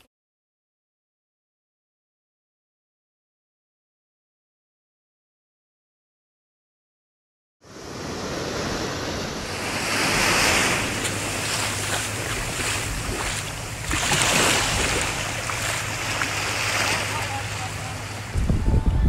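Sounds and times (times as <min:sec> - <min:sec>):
ocean surf washing ashore: 0:07.6 - 0:19.0
wind buffeting microphone: 0:07.9 - 0:17.4, 0:18.0 - 0:19.0.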